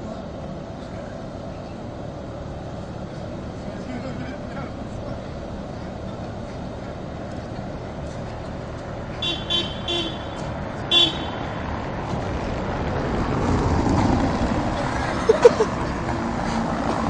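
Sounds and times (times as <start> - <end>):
low street rumble: 0.0 - 17.0
tram horn tooting: 9.2 - 11.5.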